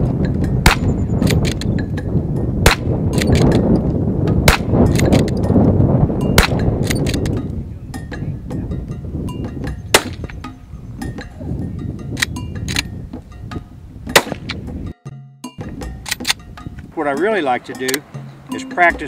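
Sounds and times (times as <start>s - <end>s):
rifle shots cracking: 0.6s - 1.6s, 2.6s - 3.5s, 4.4s - 5.3s, 9.9s - 10.3s, 14.1s - 14.6s
rifle bolt clicks: 3.1s - 3.6s, 16.0s - 16.4s.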